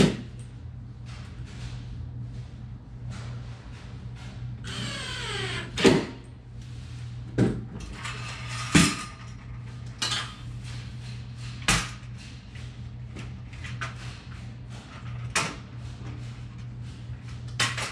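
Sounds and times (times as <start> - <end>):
steady low hum: 0.0 - 17.9.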